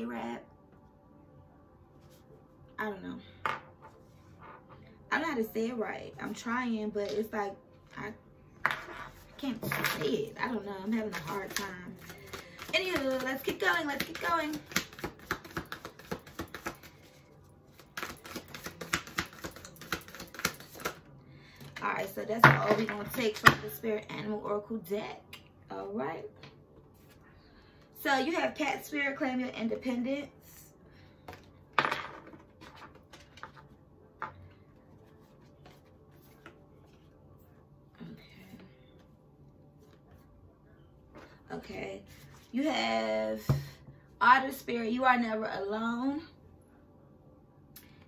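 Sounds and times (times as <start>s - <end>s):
cards clicking and tapping on table: 11.1s - 16.8s, 18.0s - 21.0s.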